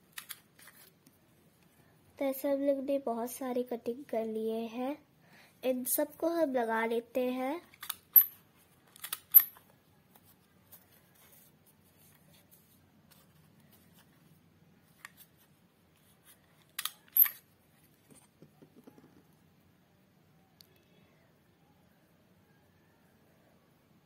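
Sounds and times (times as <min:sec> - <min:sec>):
paper rustling: 0:00.2 - 0:01.1, 0:10.1 - 0:16.8.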